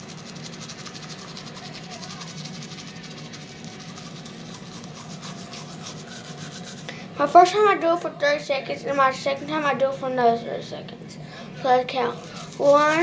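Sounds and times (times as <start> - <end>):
toothbrush scrubbing teeth: 0.0 - 7.4, 11.8 - 13.0.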